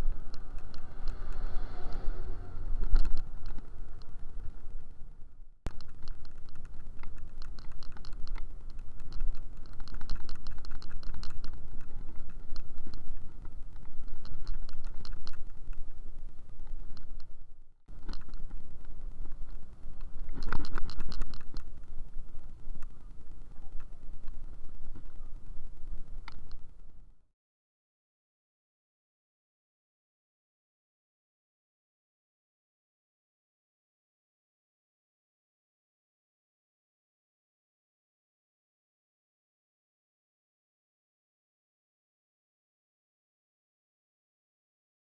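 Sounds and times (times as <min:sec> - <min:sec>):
road noise: 0:00.0 - 0:27.0
rapid clicking and rattling: 0:05.7 - 0:15.8.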